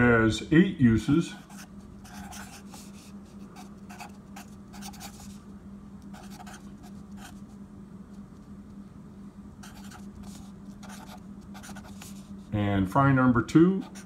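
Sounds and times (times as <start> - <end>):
steady low hum: 0.0 - 14.0
marker scratching on paper: 1.4 - 5.4, 6.1 - 7.5, 9.6 - 12.4, 13.8 - 14.0.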